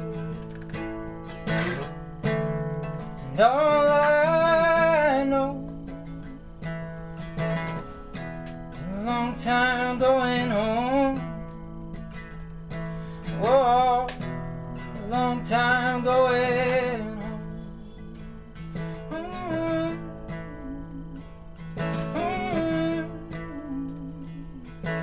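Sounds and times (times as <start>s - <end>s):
man singing: 0.0s - 0.7s, 3.1s - 6.4s, 8.8s - 11.6s, 13.2s - 25.0s
acoustic guitar: 0.0s - 25.0s.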